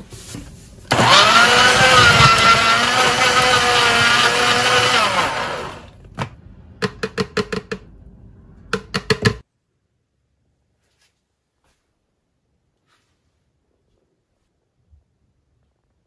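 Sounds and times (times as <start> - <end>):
small electric motor whining: 0.9 - 5.9.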